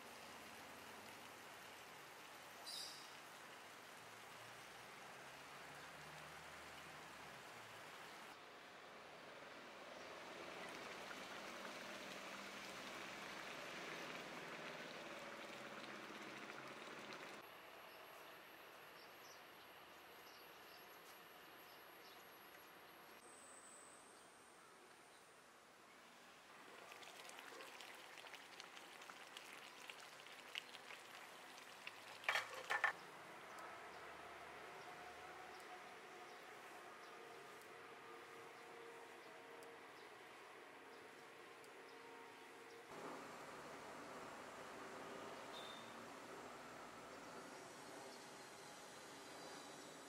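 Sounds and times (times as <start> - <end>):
curry bubbling in a pot: 10.5 - 17.4, 26.7 - 33.0
faint crackles: 26.7 - 33.0.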